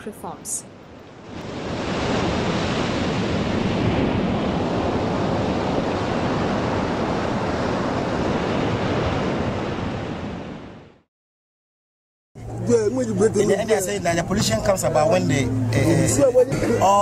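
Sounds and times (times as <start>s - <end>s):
sea surf rushing: 0.8s - 11.0s.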